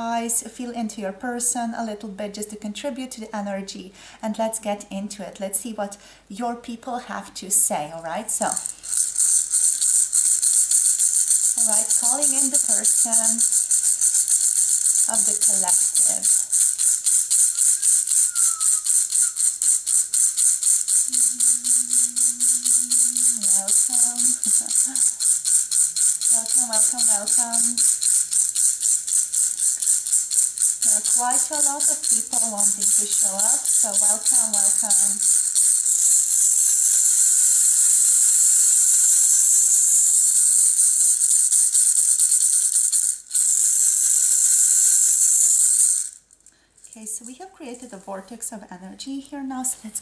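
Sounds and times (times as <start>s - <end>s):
rattle shaken rhythmically: 8.2s - 47.5s
person humming low note: 21.1s - 25.2s.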